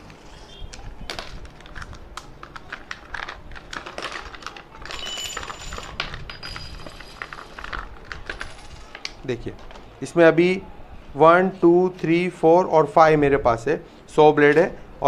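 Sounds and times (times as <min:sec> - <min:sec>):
plastic packaging crackling: 0:00.0 - 0:09.3.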